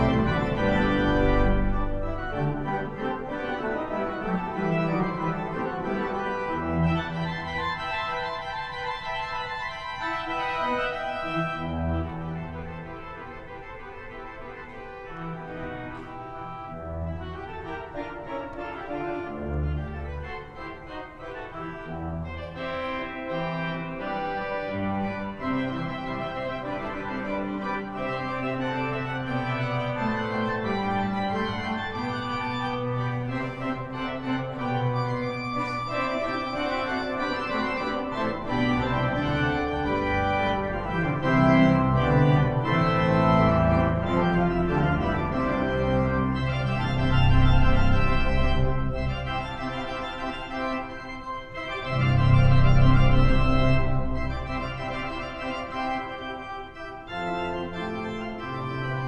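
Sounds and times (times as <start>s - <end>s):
pipe organ chords: 0.0s - 59.0s.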